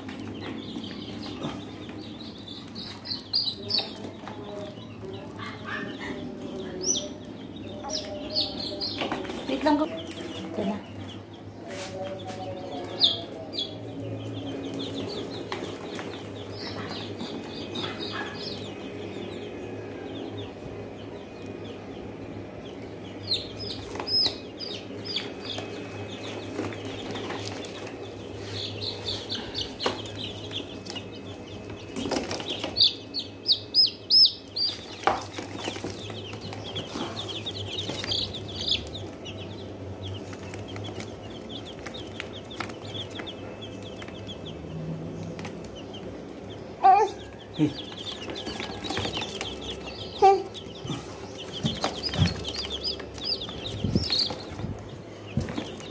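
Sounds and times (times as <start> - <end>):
chicks peeping: 0.0 - 55.9
steady low hum: 0.0 - 55.9.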